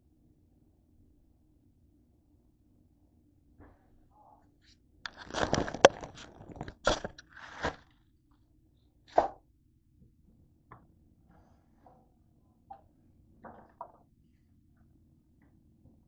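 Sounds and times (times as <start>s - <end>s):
handling rustling and clicks: 5.1s - 7.8s.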